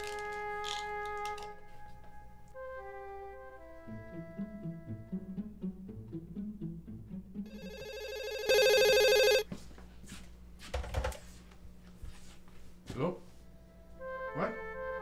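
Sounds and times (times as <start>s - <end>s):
telephone ringing: 7.5s - 9.4s.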